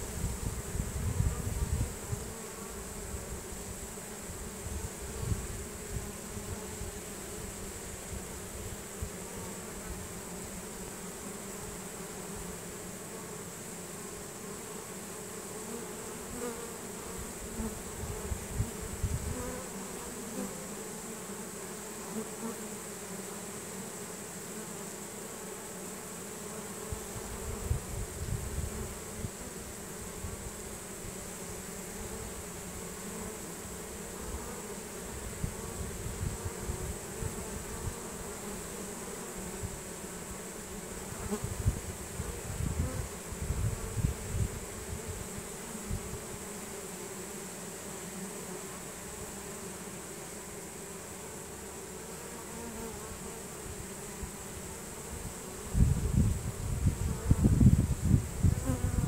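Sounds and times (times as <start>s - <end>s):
bee swarm buzzing: 0.0s - 59.0s.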